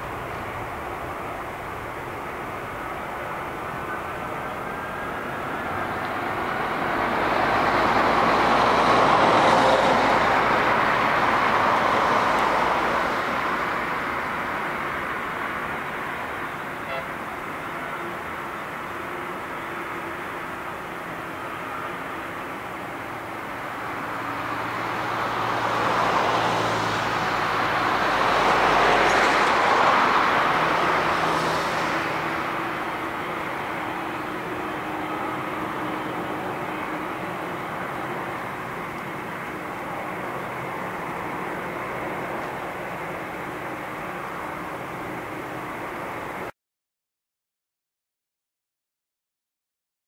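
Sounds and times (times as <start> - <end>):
jet engines roaring: 19.1 - 46.4.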